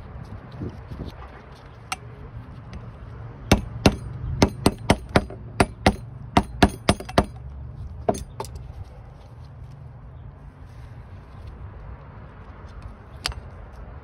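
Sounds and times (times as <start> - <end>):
hammer tapping metal punch: 3.5 - 7.4, 8.1 - 8.6.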